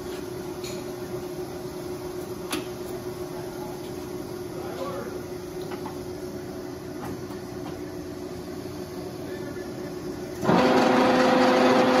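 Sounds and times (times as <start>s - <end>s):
lathe running: 9.0s - 12.0s.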